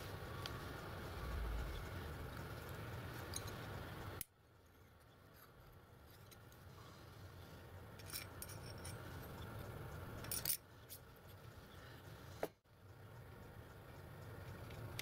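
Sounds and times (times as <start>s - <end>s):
faint room hiss: 0.0s - 15.0s
metal piston clicking: 8.0s - 11.0s.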